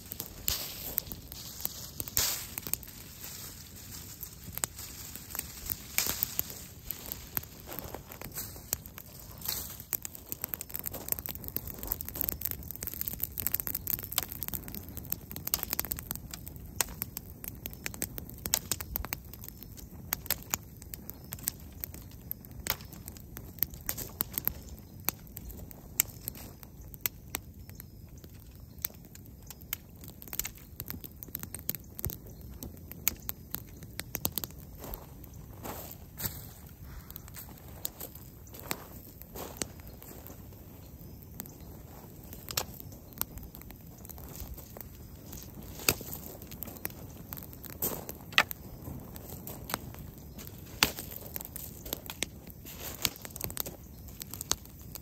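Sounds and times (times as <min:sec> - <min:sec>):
dead leaves rustling: 0:00.0 - 0:10.4
campfire crackling: 0:00.0 - 0:55.0.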